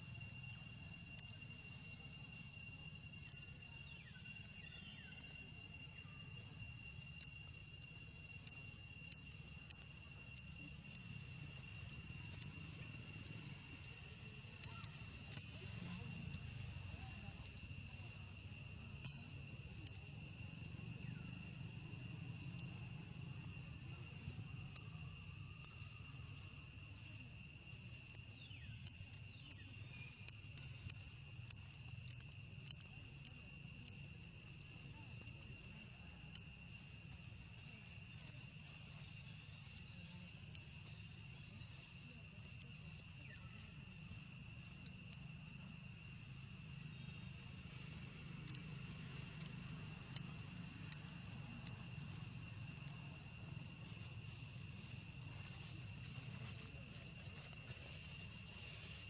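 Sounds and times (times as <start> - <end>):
insect chorus drone: 0.0 - 59.0.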